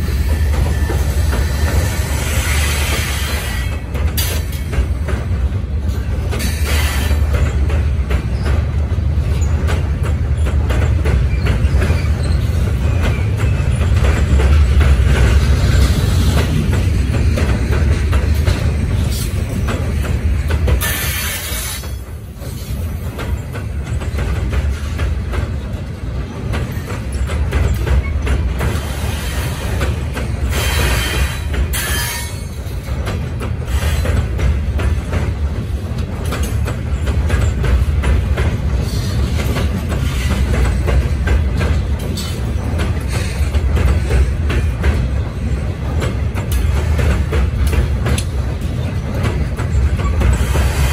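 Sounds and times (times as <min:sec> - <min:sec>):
train rumbling over a steel bridge: 0:00.0 - 0:50.9
wheels clicking over rails: 0:00.3 - 0:50.9.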